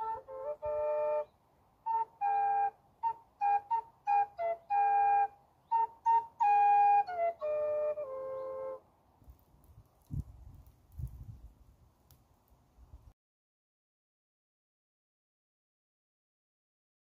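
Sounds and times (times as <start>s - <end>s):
wooden flute playing: 0.0s - 8.8s.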